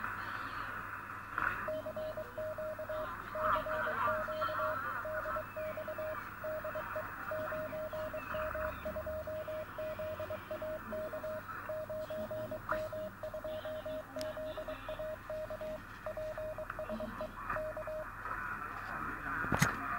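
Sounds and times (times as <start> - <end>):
radio band hiss: 0.0 - 15.0
morse code tone: 1.7 - 18.0.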